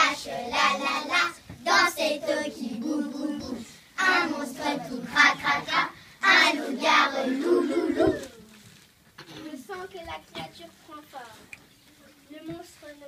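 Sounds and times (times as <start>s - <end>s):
children singing: 0.0s - 8.3s.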